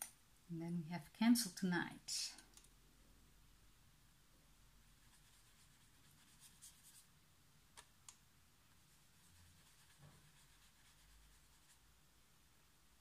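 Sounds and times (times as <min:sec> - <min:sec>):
paintbrush scratching on paper: 0:04.9 - 0:07.1, 0:08.9 - 0:11.8.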